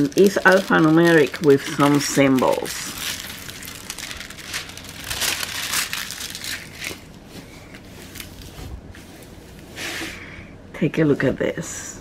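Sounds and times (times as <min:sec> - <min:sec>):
plastic film crinkling: 0:00.0 - 0:09.0.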